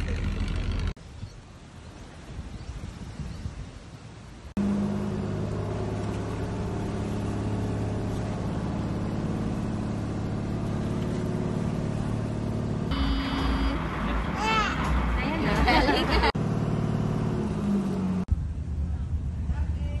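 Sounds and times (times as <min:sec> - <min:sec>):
boat engine droning: 0:04.6 - 0:18.2.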